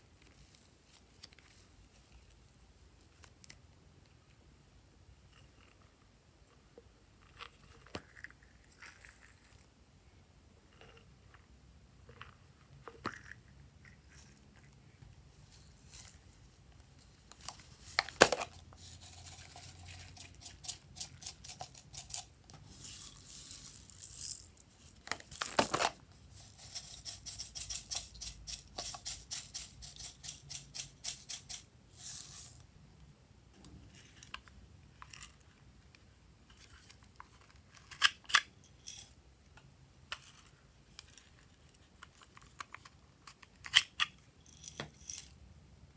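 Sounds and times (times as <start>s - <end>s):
plastic containers clicking and snapping: 25.1s - 26.0s.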